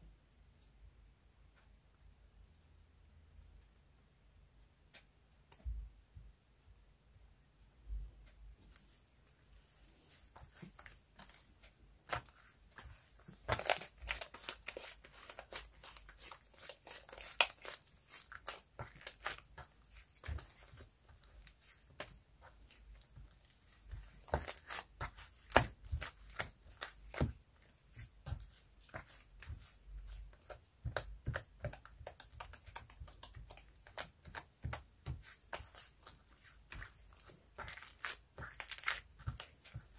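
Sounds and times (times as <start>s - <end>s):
slime crackling and popping: 12.1s - 39.9s.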